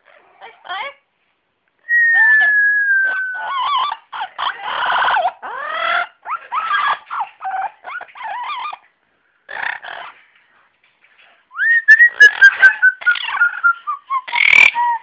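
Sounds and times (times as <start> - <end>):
parrot chattering and squawking: 0.0 - 1.0, 3.1 - 8.9, 9.5 - 10.3, 12.2 - 15.0.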